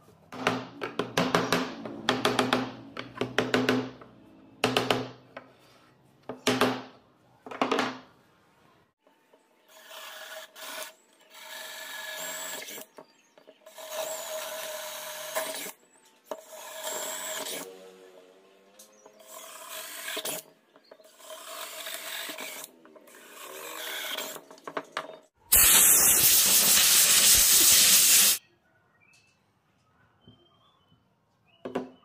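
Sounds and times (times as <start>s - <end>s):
loud rushing hiss: 25.5s - 28.4s.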